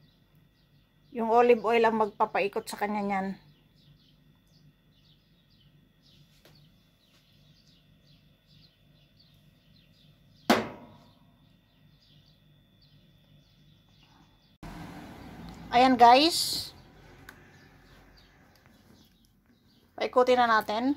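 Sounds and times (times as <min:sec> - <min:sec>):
small birds chirping: 0:00.0 - 0:20.9
sharp ringing knock: 0:10.5 - 0:11.1.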